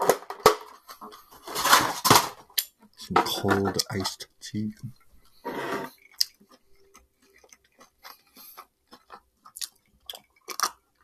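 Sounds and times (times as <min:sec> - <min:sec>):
mouth clicks of chewing: 0:06.0 - 0:10.8.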